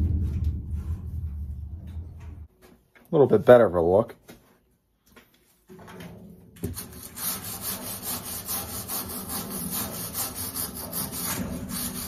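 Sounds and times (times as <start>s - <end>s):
wire brush scrubbing metal pipe: 6.6s - 12.0s.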